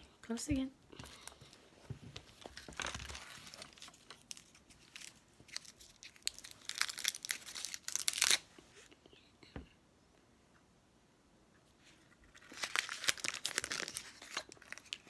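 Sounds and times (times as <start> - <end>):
wrapper crinkling: 2.2 - 8.4, 12.3 - 15.0.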